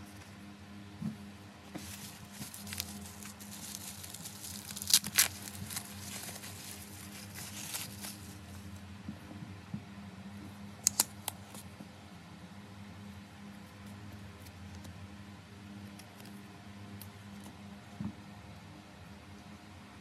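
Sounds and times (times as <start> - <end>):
bubble wrap crinkling: 1.7 - 8.7
bubble wrap snapping: 1.8 - 8.4, 10.8 - 11.6.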